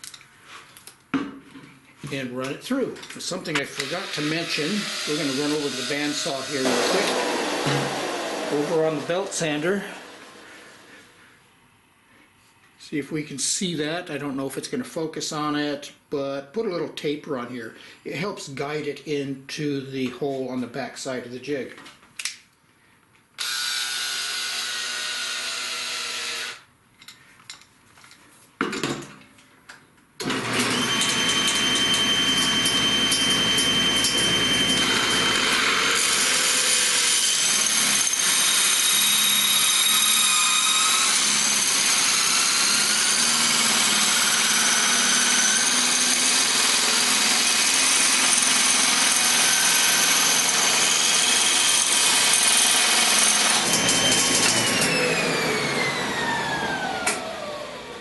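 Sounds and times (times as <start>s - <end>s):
table saw running: 3.4s - 11.0s, 23.4s - 26.6s, 30.2s - 58.0s
cordless drill running: 3.7s - 11.0s, 23.4s - 26.7s, 30.2s - 58.0s.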